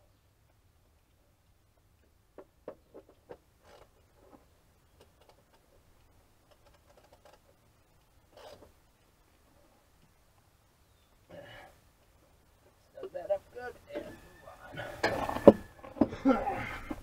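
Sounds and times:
faint ticks: 0:00.2 - 0:02.5, 0:03.1 - 0:13.2
soft rustle: 0:02.9 - 0:16.0.

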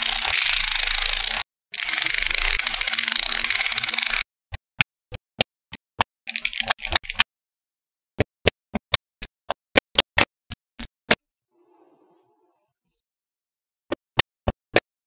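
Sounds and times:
magnetic balls clicking: 0:00.0 - 0:04.2, 0:05.4 - 0:07.3.

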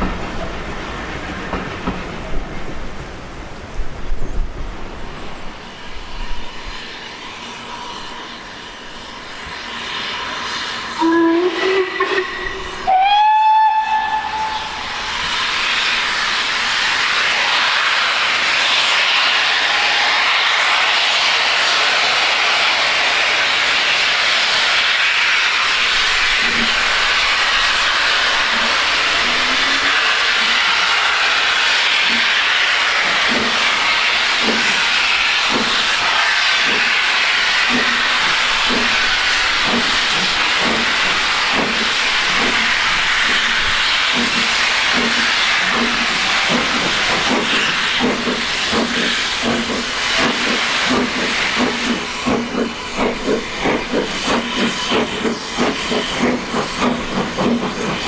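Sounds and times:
loud steam hiss: 0:00.0 - 0:58.0
steam locomotive whistle blasts: 0:10.9 - 0:15.1.

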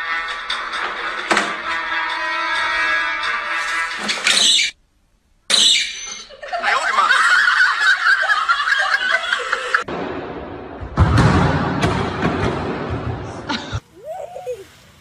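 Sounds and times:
girl laughing: 0:06.3 - 0:09.8, 0:13.5 - 0:14.8.

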